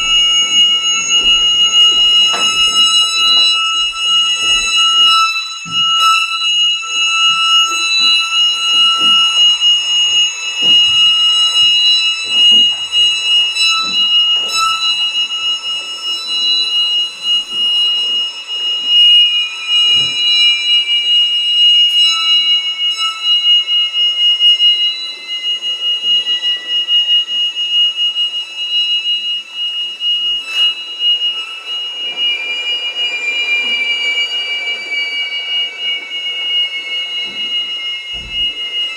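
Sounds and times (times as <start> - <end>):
violin high drone: 0.0 - 23.4.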